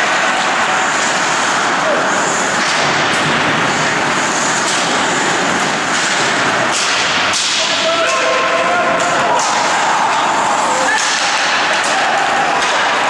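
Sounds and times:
ice hockey game din: 0.0s - 13.0s
puck knocks against boards: 5.9s - 8.2s.

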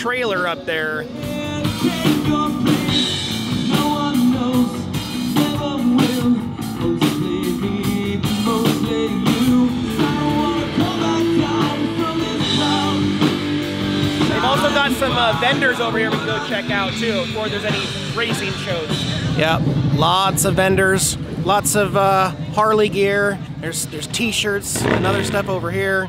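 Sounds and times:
bass guitar: 0.0s - 26.0s
drum kit: 0.0s - 26.0s
person singing: 1.0s - 13.6s
electric guitar: 1.0s - 20.0s.

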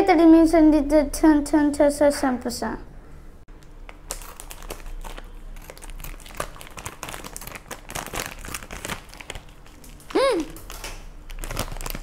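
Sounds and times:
plastic packet crinkling: 3.8s - 12.0s.

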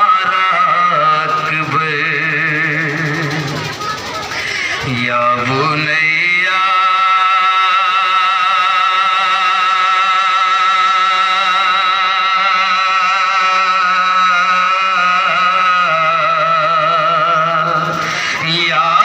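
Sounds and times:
man chanting a long lament: 0.0s - 3.6s, 4.7s - 19.0s.

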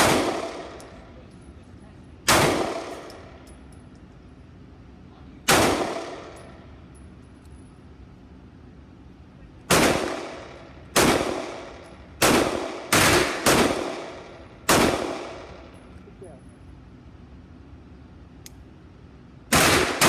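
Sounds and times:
gunshots echoing indoors: 0.0s - 1.0s, 2.2s - 3.3s, 5.4s - 6.6s, 9.7s - 15.7s, 19.5s - 20.0s.

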